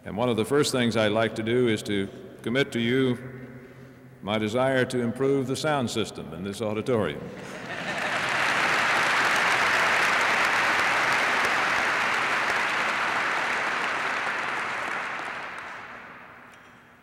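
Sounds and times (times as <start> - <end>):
audience applauding: 7.6 - 16.5.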